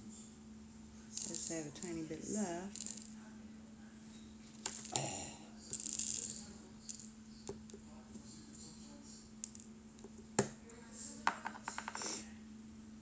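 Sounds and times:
beads rattling shake: 0:01.2 - 0:02.1, 0:02.7 - 0:03.1, 0:04.6 - 0:05.1, 0:05.7 - 0:07.1.

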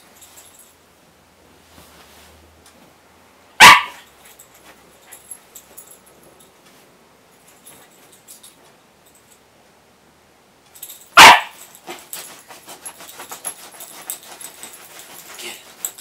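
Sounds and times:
puppy barking: 0:03.6 - 0:04.1, 0:11.2 - 0:11.6
puppy scrabbling on bedding: 0:11.6 - 0:16.0.

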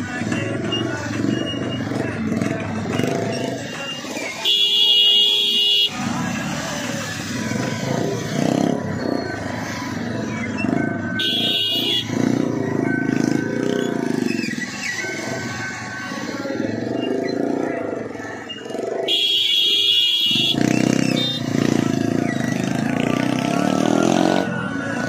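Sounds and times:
engines idling: 0:00.0 - 0:25.0
vehicle horn blast: 0:04.4 - 0:06.0, 0:11.2 - 0:12.2, 0:19.1 - 0:21.5.

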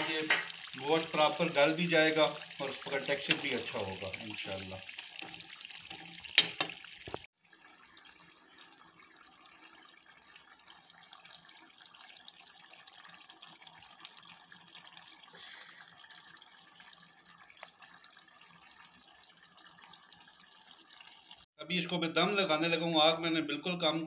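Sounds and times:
gravy bubbling in pan: 0:00.0 - 0:21.5
ladle clinking against pan: 0:05.2 - 0:06.8.

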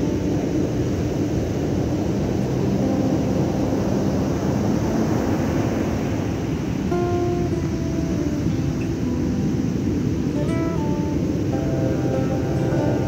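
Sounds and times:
waves breaking on beach: 0:00.0 - 0:13.0
wind buffeting microphone: 0:00.0 - 0:13.0.

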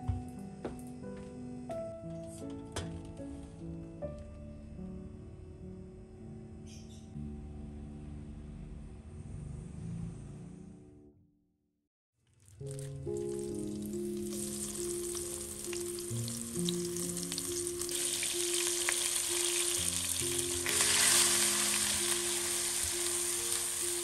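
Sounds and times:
paste sizzling in hot oil: 0:12.4 - 0:24.0.

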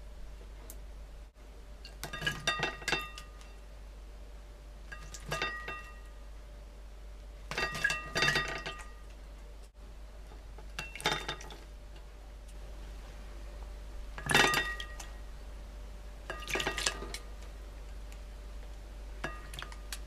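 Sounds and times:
ceramic plate ringing: 0:05.0 - 0:06.1, 0:14.2 - 0:15.0.

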